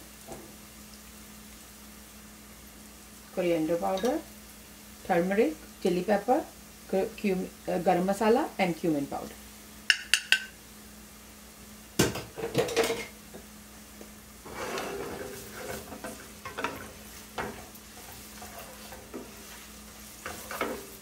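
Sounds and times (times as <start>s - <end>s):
onions sizzling: 0.0s - 21.0s
wooden spoon scraping a pan: 14.4s - 21.0s.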